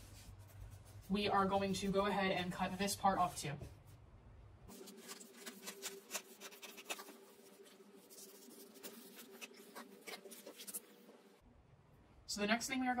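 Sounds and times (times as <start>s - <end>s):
scissors snipping paper: 4.7s - 10.8s
paper rustling: 4.7s - 11.2s.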